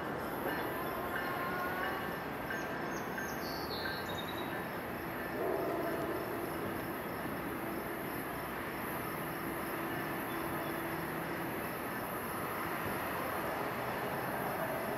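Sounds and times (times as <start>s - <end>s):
passenger train running: 0.0s - 14.9s.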